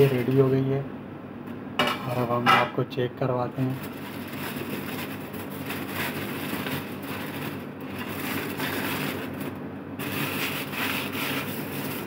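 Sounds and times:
aluminium foil crinkling: 0:00.0 - 0:00.6, 0:03.7 - 0:12.0
steady low hum: 0:00.0 - 0:12.0.

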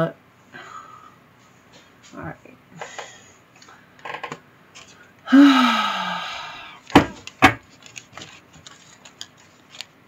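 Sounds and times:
cards being shuffled: 0:06.8 - 0:10.0.

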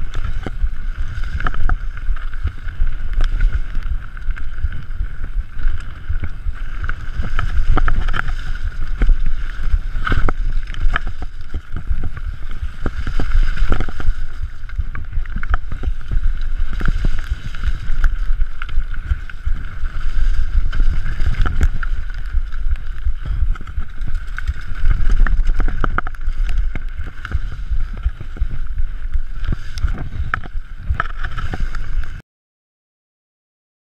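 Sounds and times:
bike rattles and knocks: 0:00.0 - 0:32.2
wind buffeting microphone: 0:00.0 - 0:32.2.

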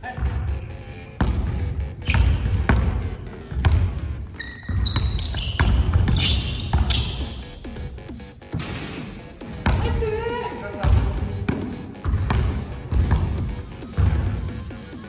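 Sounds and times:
sneaker squeaks: 0:00.4 - 0:01.3, 0:02.0 - 0:02.7, 0:04.3 - 0:07.7
basketball bouncing on wooden floor: 0:01.2 - 0:07.4, 0:09.6 - 0:10.2, 0:10.8 - 0:14.4.

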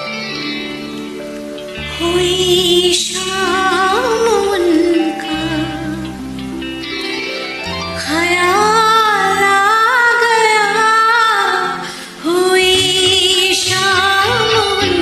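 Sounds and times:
karaoke backing track: 0:00.0 - 0:15.0
woman singing: 0:01.8 - 0:06.5, 0:07.9 - 0:15.0.

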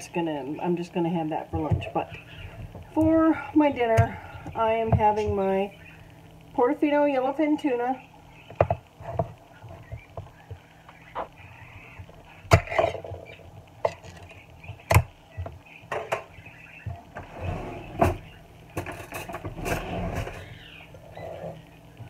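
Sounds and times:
scraping metal: 0:18.8 - 0:20.6.

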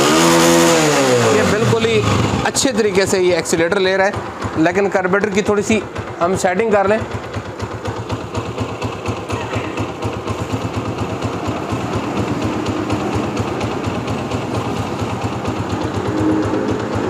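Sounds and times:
motorcycle engine idling: 0:00.0 - 0:17.0.

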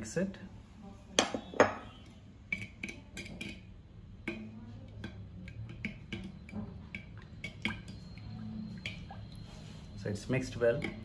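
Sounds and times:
spoon scraping clay pot: 0:01.4 - 0:10.0.

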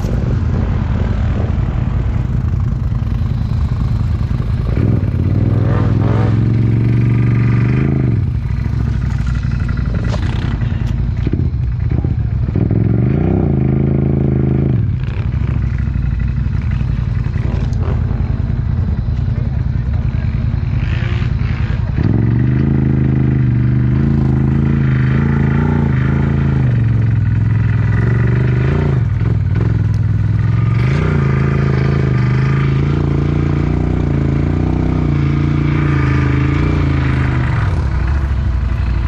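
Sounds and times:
quad engine revving: 0:02.8 - 0:39.0.

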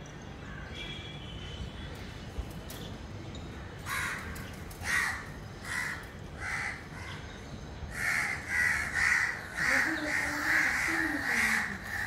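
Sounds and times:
crow cawing: 0:03.8 - 0:07.2, 0:07.9 - 0:12.0.

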